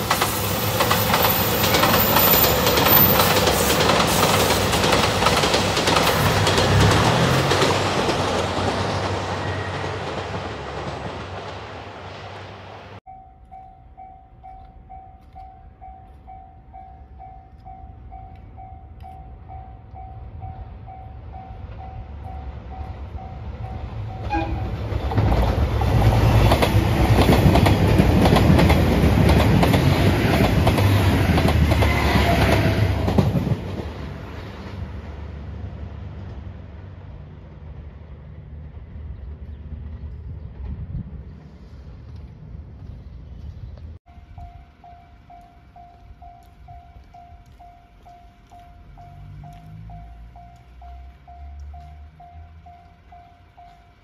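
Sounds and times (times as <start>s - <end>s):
diesel train passing: 0.0s - 54.0s
train wheel and engine noise: 0.0s - 54.0s
level crossing alarm ringing: 44.1s - 54.0s.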